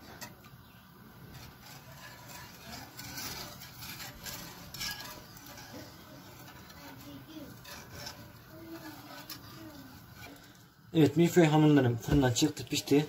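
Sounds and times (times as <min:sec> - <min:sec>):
whisk clinking and scraping pan: 0:00.0 - 0:11.4.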